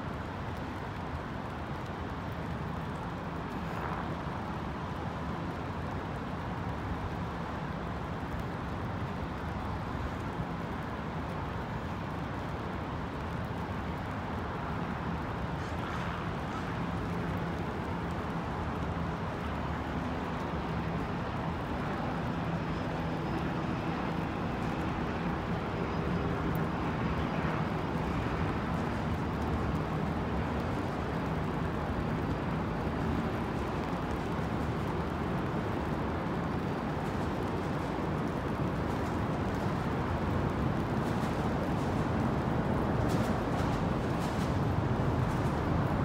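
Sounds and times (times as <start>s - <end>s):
motor traffic noise: 0.0s - 46.0s.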